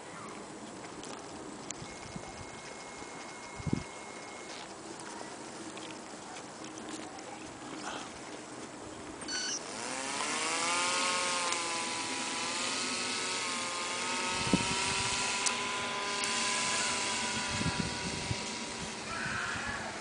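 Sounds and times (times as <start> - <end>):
small motor and propeller: 0.0 - 7.8, 9.2 - 20.0.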